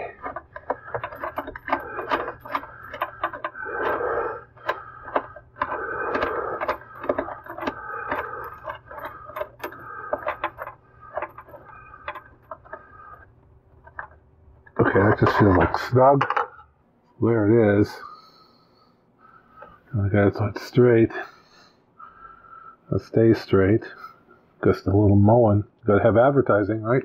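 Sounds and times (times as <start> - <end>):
plastic tool clicking and scraping threads: 0.0 - 16.5.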